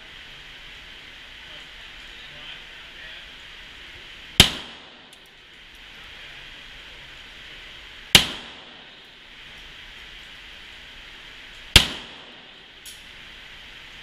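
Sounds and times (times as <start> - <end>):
pistol shots with echo: 4.4 - 5.2, 8.1 - 9.0, 11.7 - 12.7.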